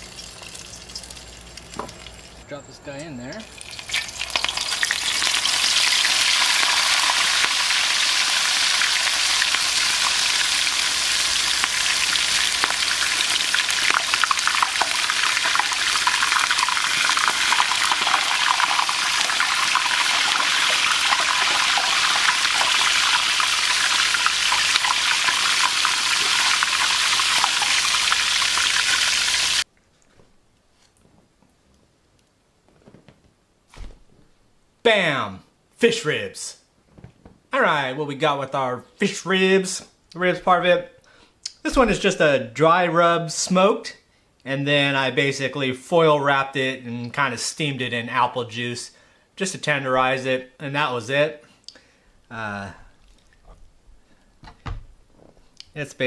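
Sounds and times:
fish sizzling in hot oil: 0:03.4 - 0:29.7.

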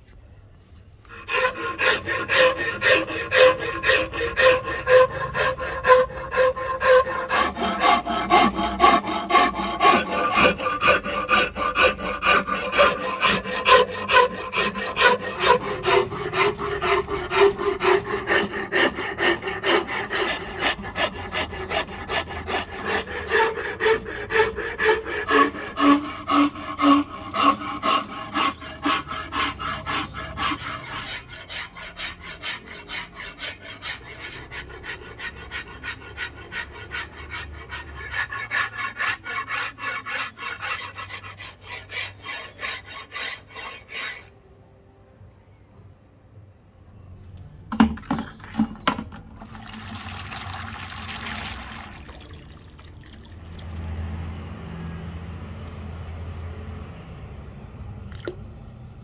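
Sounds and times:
file rasping on wood: 0:01.0 - 0:44.4.

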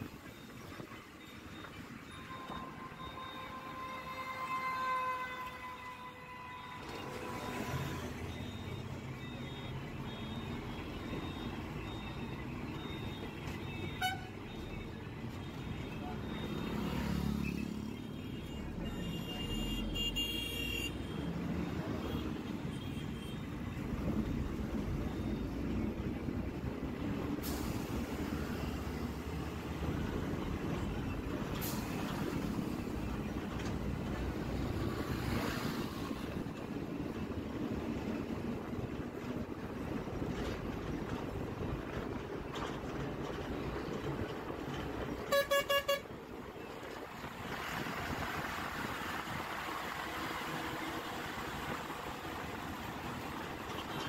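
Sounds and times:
heavy truck engines rumbling: 0:00.0 - 0:54.0.

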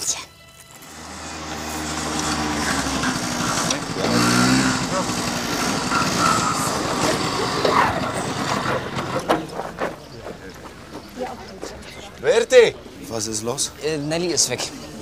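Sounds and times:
scooter engine approaching: 0:00.8 - 0:11.7.

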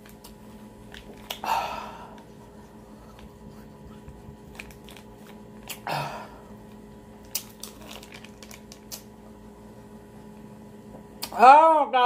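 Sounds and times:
plastic wrapper crinkling: 0:04.4 - 0:05.8, 0:07.2 - 0:09.1.

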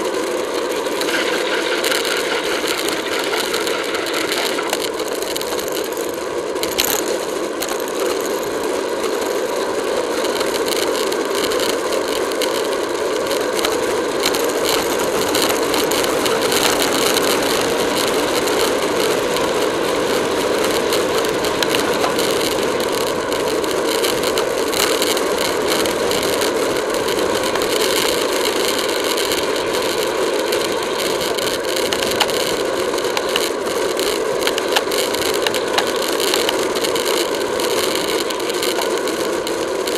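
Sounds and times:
bicycle rattling clicks and knocks: 0:00.0 - 0:39.9
wind and road noise: 0:00.0 - 0:39.9.

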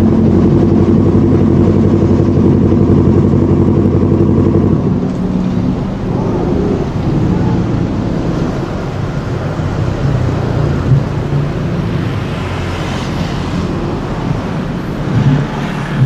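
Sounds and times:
motorcycle engine running: 0:00.0 - 0:09.3
road and wind noise: 0:00.0 - 0:16.0.

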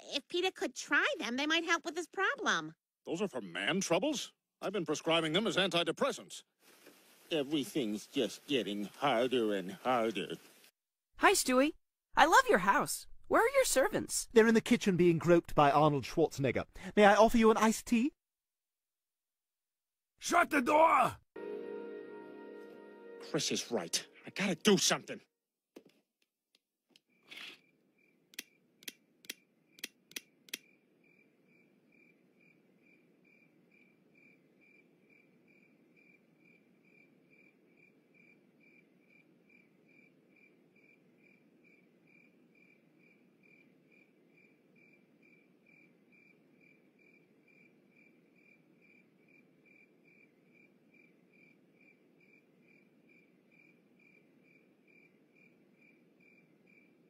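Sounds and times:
crickets chirping: 0:27.1 - 0:57.0
flashlight switch clicks: 0:28.3 - 0:30.6.

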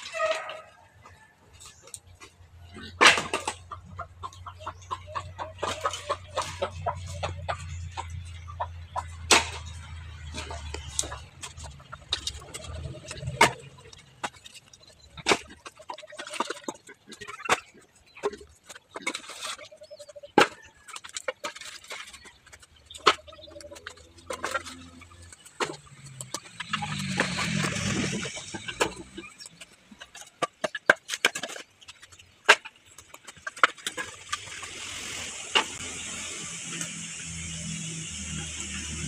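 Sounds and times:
rain hissing: 0:34.2 - 0:39.0.

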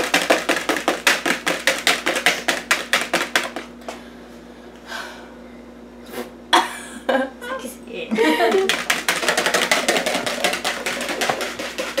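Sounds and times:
whisk clicking against plastic bowl: 0:08.5 - 0:12.0.

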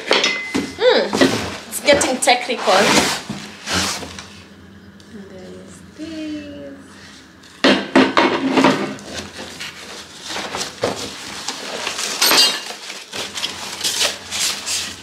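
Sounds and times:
box scraping: 0:01.0 - 0:04.3.

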